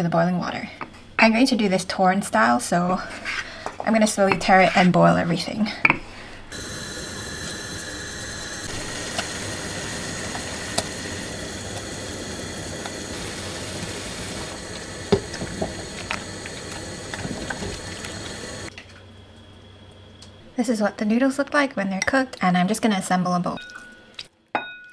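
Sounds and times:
water boiling in pot: 6.5s - 20.3s
metal spoon clinking pot: 24.6s - 24.9s.

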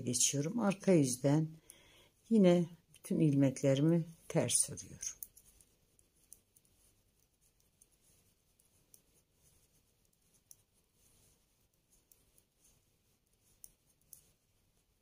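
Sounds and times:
knitting needles clicking: 2.8s - 15.0s.

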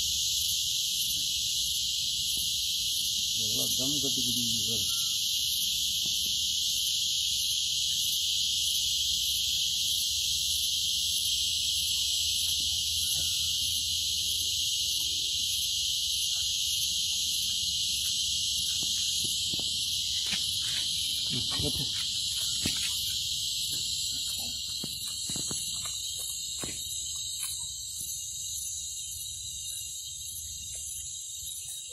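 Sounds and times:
insects buzzing: 0.0s - 31.9s.

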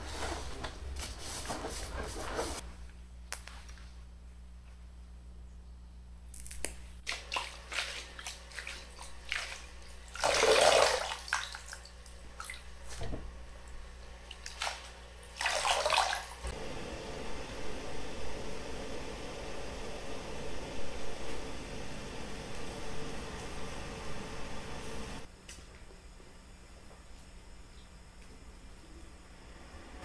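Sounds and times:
gas burner hissing: 16.4s - 25.3s.

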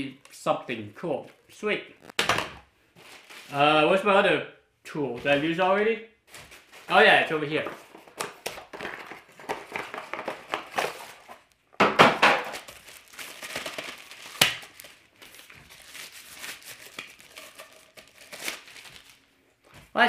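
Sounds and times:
packaging crinkling and rustling: 2.9s - 3.6s, 6.3s - 19.7s.

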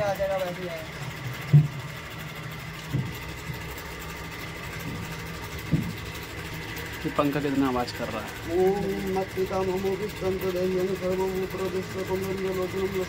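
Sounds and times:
electric fan humming: 0.0s - 13.0s
short thumps: 1.4s - 2.0s, 2.8s - 3.6s, 4.8s - 6.2s.

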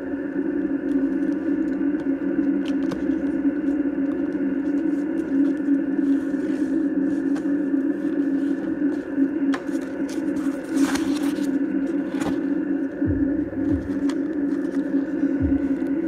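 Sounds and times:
steady hum: 0.0s - 16.0s
cardboard box being opened: 2.6s - 12.6s
rustling scrape: 4.7s - 12.6s
low thuds: 13.1s - 14.2s, 15.4s - 15.8s.

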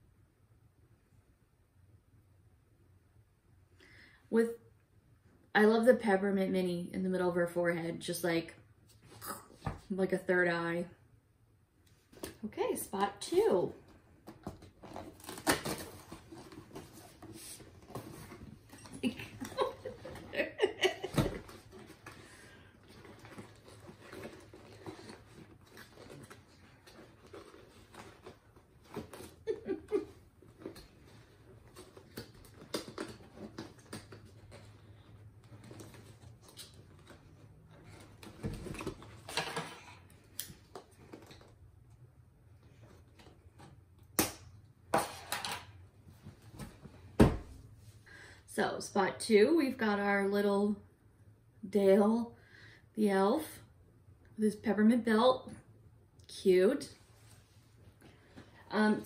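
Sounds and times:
cardboard and plastic rustling: 13.3s - 42.0s.

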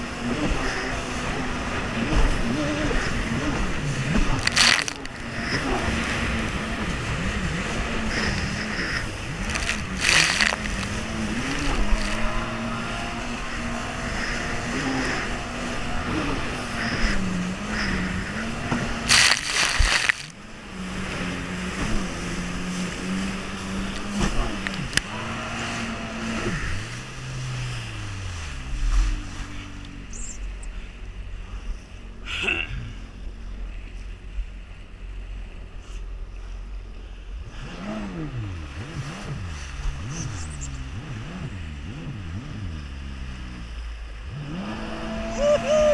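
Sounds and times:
jet ski engine running: 0.0s - 45.9s
loud water splash: 4.3s - 5.4s, 8.4s - 12.4s, 19.0s - 20.4s
water spray: 19.1s - 20.3s.

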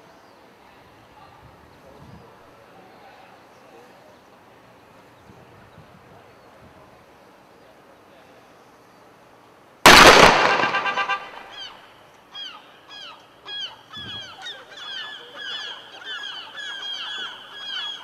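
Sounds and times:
firework blast: 9.9s - 11.5s
geese honking: 10.6s - 11.8s.

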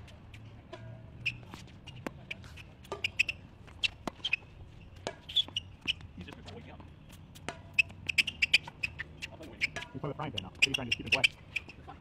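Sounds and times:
tennis ball struck and bouncing: 0.7s - 4.4s, 5.0s - 6.5s, 7.4s - 9.0s, 9.6s - 11.2s
sneakers squeaking on court: 1.1s - 12.0s.

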